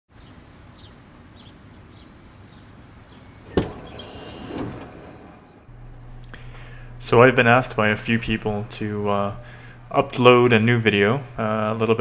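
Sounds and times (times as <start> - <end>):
sliding door motor whirring: 3.2 - 5.8
door unlatching clunk: 3.4 - 5.7.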